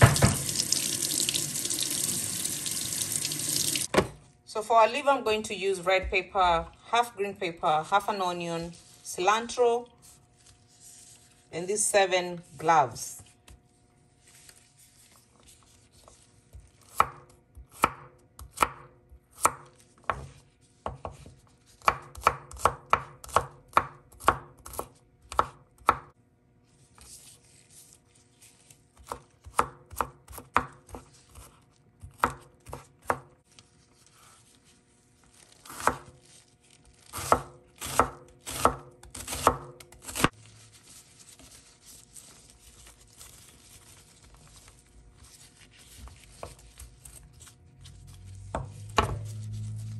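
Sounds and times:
knife chopping on wooden board: 0:16.8 - 0:26.1, 0:29.0 - 0:33.3, 0:35.7 - 0:36.1, 0:37.2 - 0:40.3, 0:48.5 - 0:49.3.

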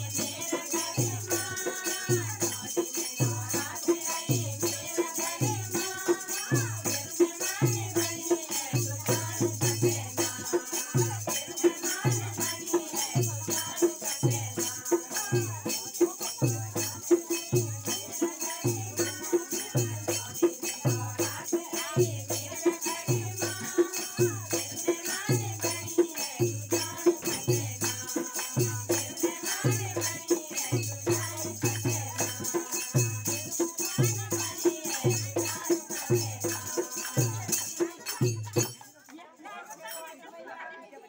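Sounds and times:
jingling percussion: 0:00.0 - 0:40.6
women singing together: 0:00.0 - 0:41.0
hand-clapping: 0:26.8 - 0:32.7, 0:34.4 - 0:39.3.

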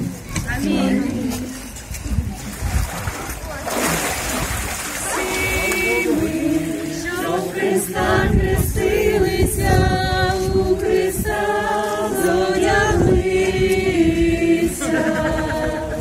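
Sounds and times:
congregation singing a hymn: 0:04.9 - 0:16.0.

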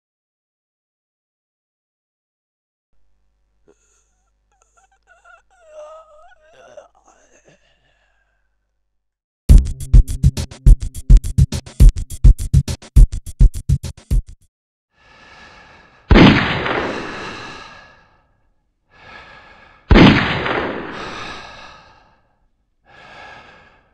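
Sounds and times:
fast electronic drum beat: 0:09.5 - 0:14.4
rifle gunshot sound effect: 0:16.1 - 0:17.2, 0:19.9 - 0:21.0.

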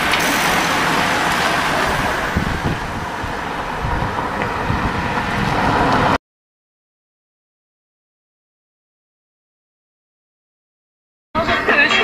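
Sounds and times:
roadside hiss of passing cyclists: 0:00.0 - 0:06.2
wind buffeting microphone: 0:00.0 - 0:06.2.

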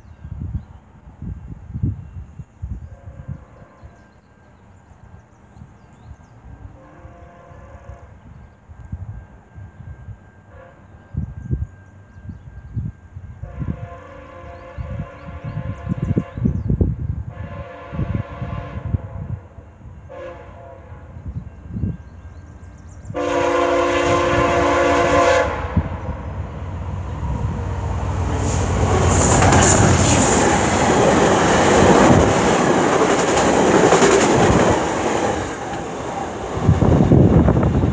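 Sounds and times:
train passing at speed: 0:00.0 - 0:37.9
train horn: 0:02.8 - 0:04.2, 0:06.6 - 0:08.4, 0:10.2 - 0:11.2, 0:13.3 - 0:21.5, 0:23.1 - 0:26.2.

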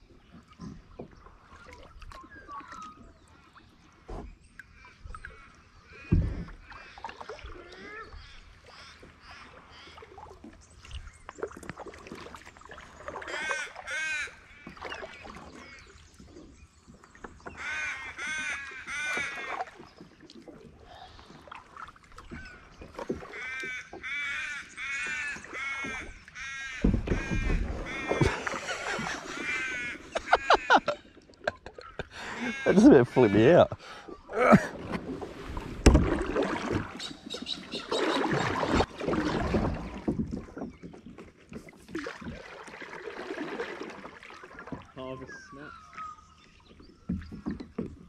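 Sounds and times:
kayak paddle splashing: 0:00.0 - 0:48.0
crows cawing: 0:23.4 - 0:28.1, 0:29.4 - 0:30.8, 0:32.4 - 0:33.3.

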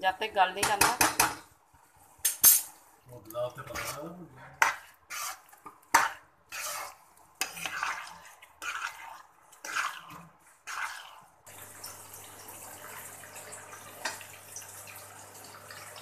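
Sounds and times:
spoon stirring thick gravy: 0:00.6 - 0:11.5.

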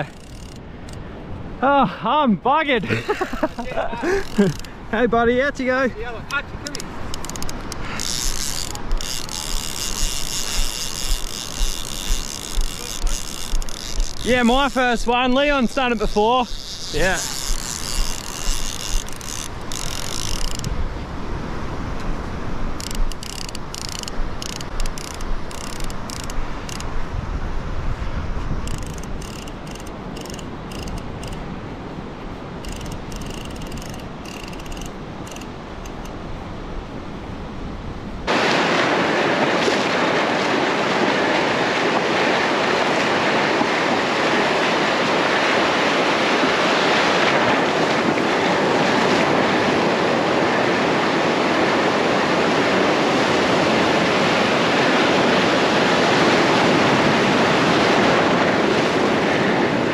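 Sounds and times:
surf washing in and foaming: 0:00.0 - 0:59.9
wind on microphone: 0:06.1 - 0:59.9
faint clicks: 0:06.2 - 0:14.8, 0:22.8 - 0:26.9, 0:28.6 - 0:31.4, 0:32.6 - 0:36.2.

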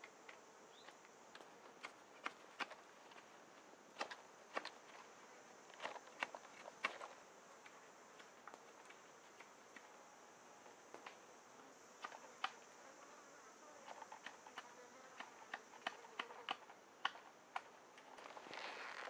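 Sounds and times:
forest ambience: 0:00.0 - 0:19.0
insects buzzing: 0:00.0 - 0:19.0
small sharp clicks and cracks: 0:04.0 - 0:05.0, 0:13.8 - 0:19.0.

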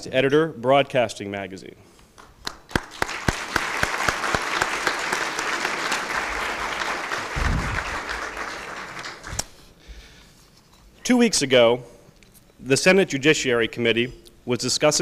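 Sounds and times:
audience applauding: 0:02.2 - 0:09.5.

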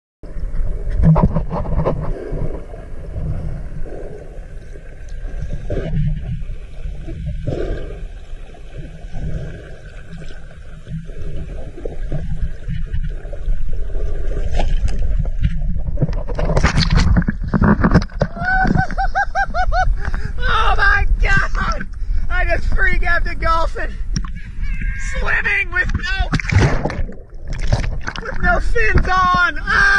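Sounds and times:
underwater rumble: 0:00.2 - 0:23.2, 0:23.8 - 0:29.9
loud splashing: 0:26.2 - 0:28.7
fish thrashing in water: 0:26.3 - 0:29.1.

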